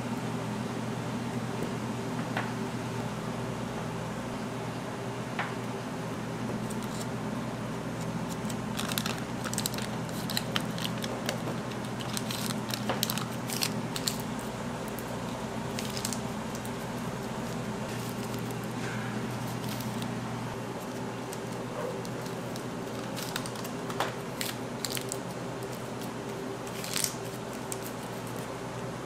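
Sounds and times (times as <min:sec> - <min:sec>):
low machine hum: 0:00.0 - 0:29.0
small objects clicking and rustling: 0:08.4 - 0:14.2.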